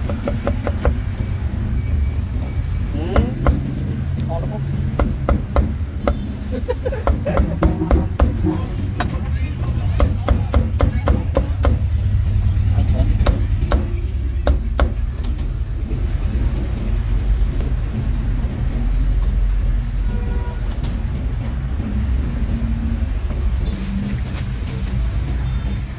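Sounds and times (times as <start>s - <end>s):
low rumble of street traffic: 0.0s - 25.9s.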